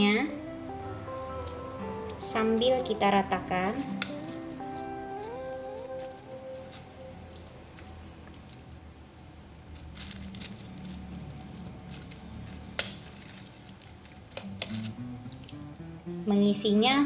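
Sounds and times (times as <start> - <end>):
plastic lining crinkling: 2.7 - 8.8, 9.6 - 15.7
spoon patting moist filling: 9.8 - 16.0.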